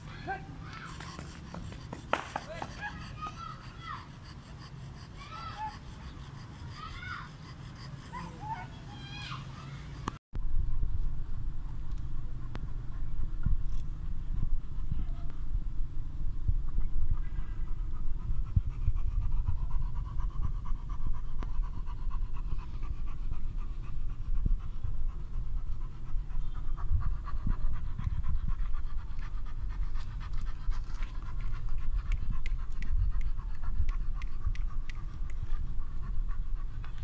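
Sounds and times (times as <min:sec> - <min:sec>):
dog panting heavily: 0:00.6 - 0:10.2, 0:17.4 - 0:37.0.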